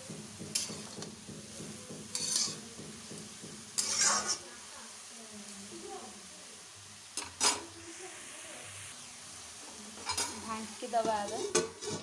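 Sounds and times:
spatula knocking against pan: 0:00.0 - 0:04.0
cabbage sizzling in oil: 0:00.0 - 0:12.0.

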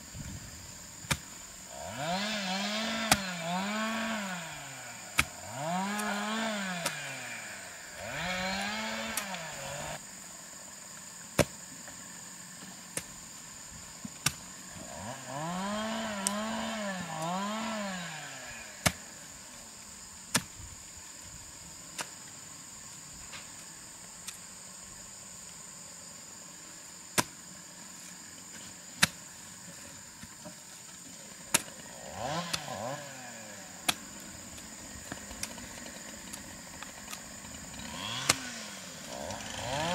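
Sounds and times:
hand hoe striking soil: 0:01.0 - 0:01.4, 0:02.8 - 0:04.2, 0:05.1 - 0:07.2, 0:08.4 - 0:09.8, 0:11.4 - 0:11.6, 0:12.9 - 0:13.2, 0:14.0 - 0:14.5, 0:16.1 - 0:17.3, 0:18.8 - 0:19.0, 0:20.2 - 0:20.7, 0:21.9 - 0:22.2, 0:27.1 - 0:27.4, 0:28.4 - 0:29.3, 0:31.4 - 0:31.8, 0:32.4 - 0:32.7, 0:33.8 - 0:37.3
small engine revving: 0:01.7 - 0:10.0, 0:14.7 - 0:19.2, 0:31.5 - 0:39.9.

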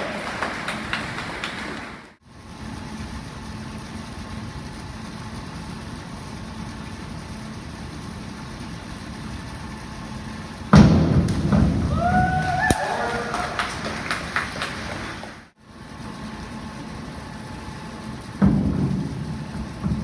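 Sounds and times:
scattered claps: 0:00.0 - 0:02.2, 0:12.4 - 0:15.5
indoor pool hall hum: 0:00.0 - 0:20.0
spectator cheering: 0:11.8 - 0:15.4.

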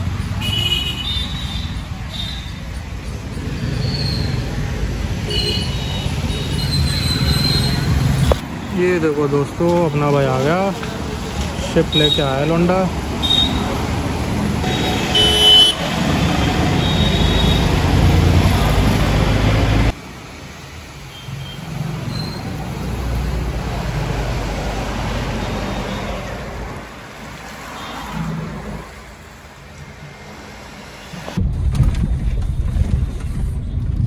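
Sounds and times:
cars and motorbikes passing: 0:00.0 - 0:31.4.

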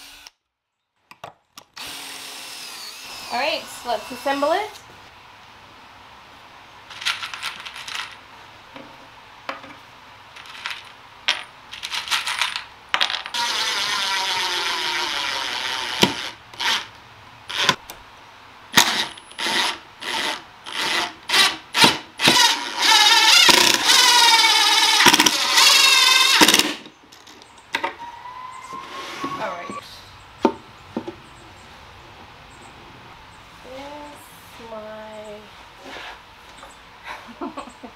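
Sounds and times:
cordless drill driving screws: 0:00.0 - 0:00.3, 0:01.8 - 0:04.4, 0:13.4 - 0:16.9, 0:17.5 - 0:17.8, 0:18.8 - 0:26.9.

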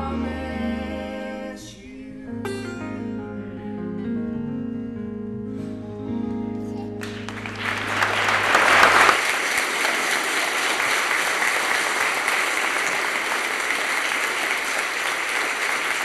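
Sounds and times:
crowd applauding: 0:07.0 - 0:16.0.

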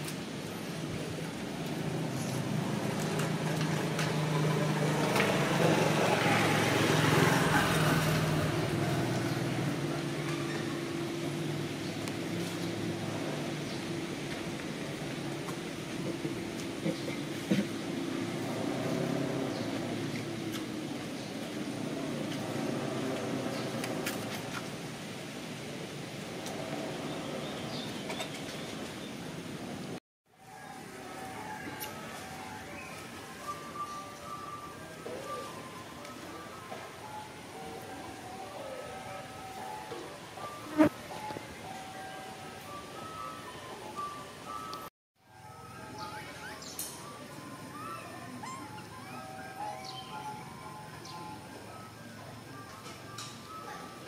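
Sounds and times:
engine running: 0:00.4 - 0:28.2.

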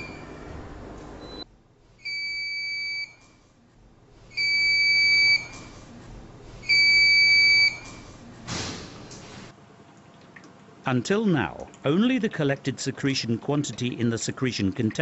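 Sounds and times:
long electronic alarm beeps: 0:02.0 - 0:03.2, 0:04.4 - 0:05.5, 0:06.7 - 0:07.8.

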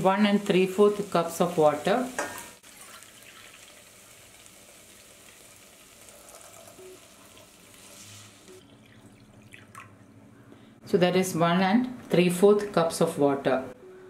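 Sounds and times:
faint pan sizzle: 0:00.0 - 0:09.1
stream of water filling a cup: 0:02.6 - 0:04.0, 0:06.0 - 0:07.6, 0:08.5 - 0:10.0
water poured into a pot: 0:02.6 - 0:10.0.

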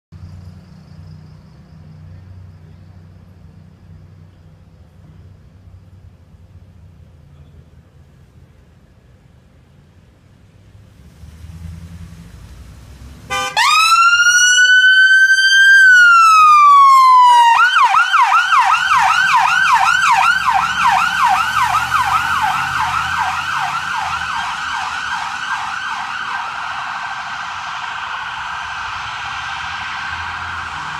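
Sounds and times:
ambulance siren wailing and yelping: 0:13.3 - 0:30.9.

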